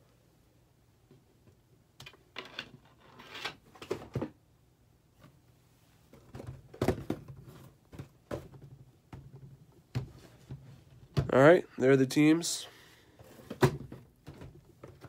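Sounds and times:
cardboard boxes knocking and scraping: 6.2 - 11.3.

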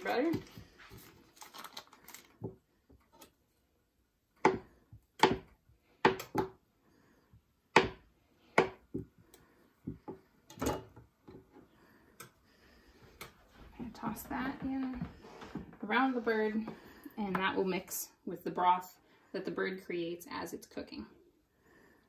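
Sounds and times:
butter wrapper rustling: 0.4 - 2.5.

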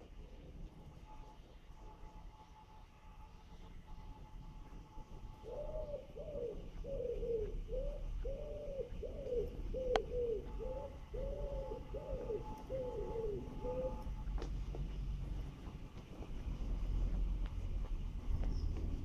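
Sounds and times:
low steady rumble: 0.0 - 19.0
pigeon cooing: 5.4 - 14.2.

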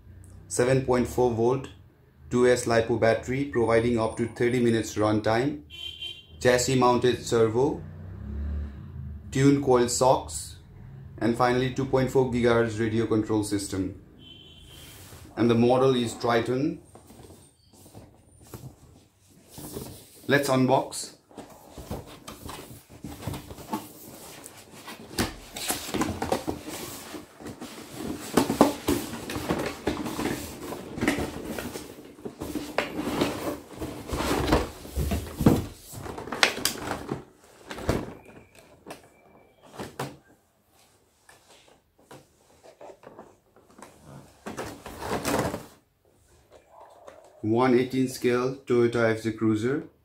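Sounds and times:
cardboard and plastic packaging rustling: 16.3 - 20.5, 21.2 - 46.6.

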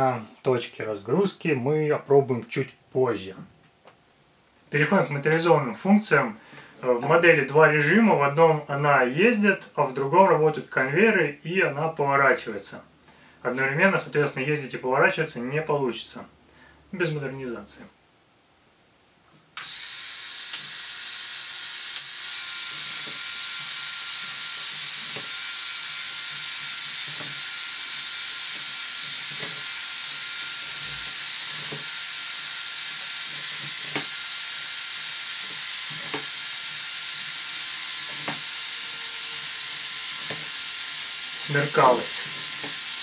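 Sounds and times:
toy electric motors whining: 19.6 - 43.0.

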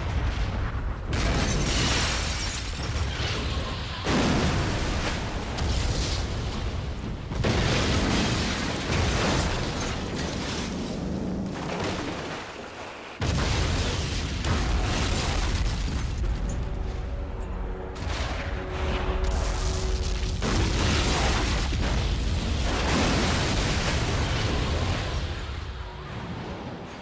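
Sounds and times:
explosion blasts: 13.2 - 17.0, 18.0 - 26.9.

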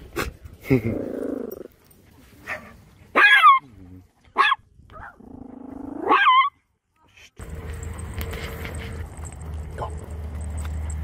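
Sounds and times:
dog barking: 2.4 - 3.6, 4.4 - 5.2.

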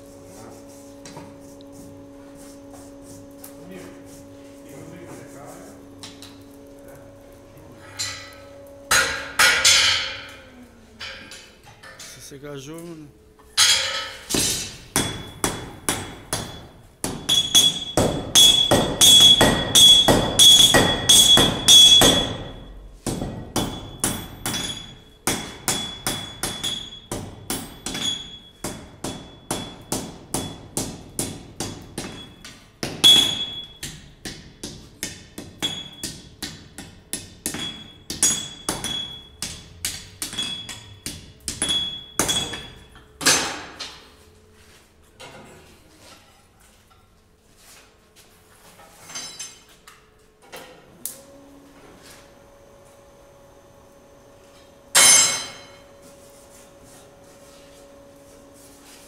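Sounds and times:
hammer striking metal on anvil: 8.0 - 10.4, 13.6 - 44.0, 54.9 - 55.8.

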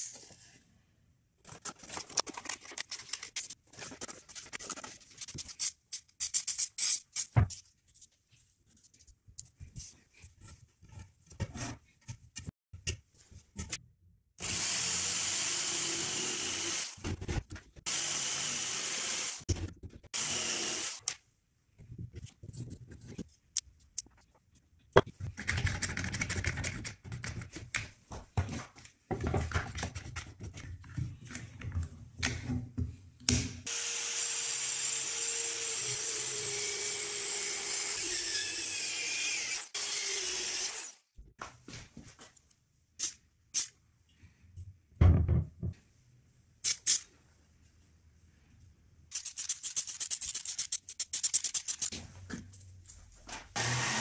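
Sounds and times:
jigsaw cutting wood: 14.4 - 17.0, 17.9 - 19.4, 20.2 - 21.0, 33.7 - 41.0, 53.6 - 54.0
power tool running: 17.9 - 19.4, 20.2 - 21.0, 33.7 - 38.0, 53.6 - 54.0.

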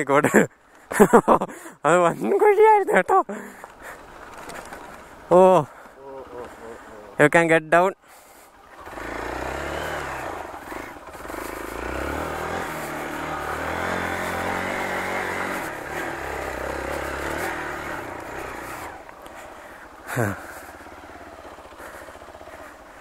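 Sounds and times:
motorcycle engine revving: 8.3 - 23.0.

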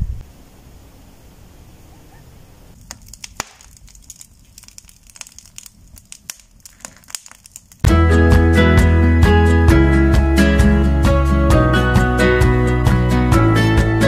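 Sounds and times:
firewood crackling and popping: 2.7 - 8.2.

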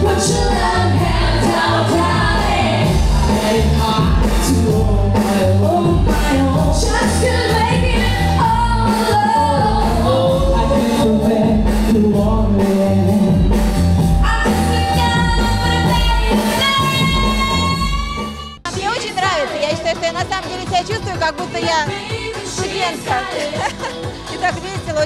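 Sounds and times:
women singing pop song: 0.0 - 11.3, 14.2 - 20.0, 21.2 - 25.0
band playing steady beat: 0.0 - 25.0.

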